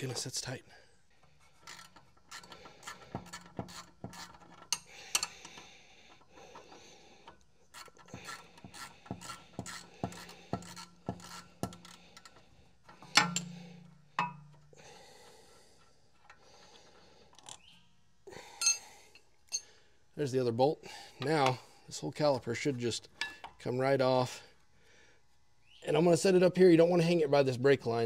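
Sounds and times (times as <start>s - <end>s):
wrench ratcheting clicks: 1.6s - 13.5s.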